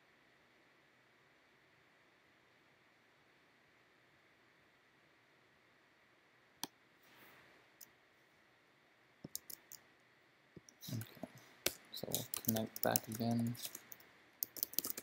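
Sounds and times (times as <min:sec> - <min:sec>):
computer mouse clicks: 0:09.2 - 0:09.8, 0:10.6 - 0:15.0
keyboard typing: 0:09.3 - 0:09.8, 0:10.8 - 0:15.0.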